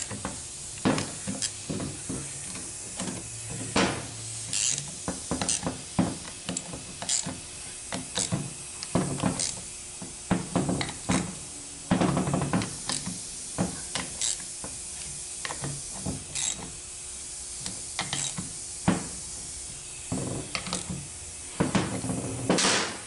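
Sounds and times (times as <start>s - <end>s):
ratchet wrench clicking: 4.5s - 5.6s, 6.2s - 7.3s, 7.9s - 9.6s, 12.6s - 13.2s, 13.9s - 14.5s, 15.4s - 16.8s, 17.6s - 18.5s, 20.5s - 20.9s.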